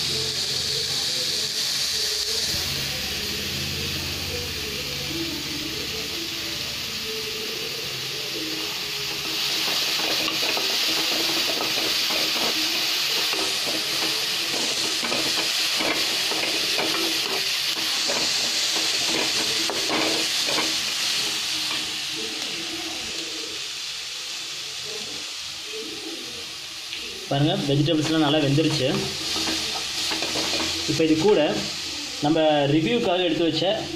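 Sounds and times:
vegetables sizzling in hot oil: 0.0 - 33.9
wooden spatula scraping pan: 28.0 - 31.4.

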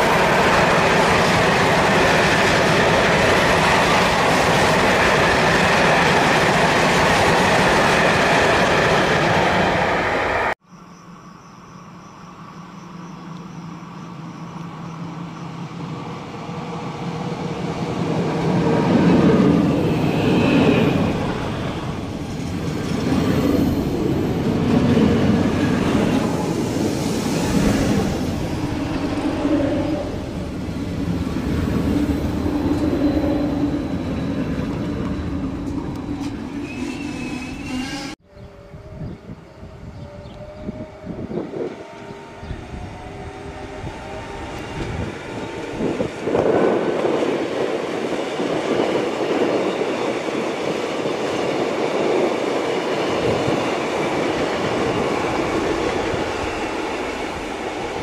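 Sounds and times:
electric train passing: 0.0 - 58.0
train motor whine: 19.4 - 47.2.

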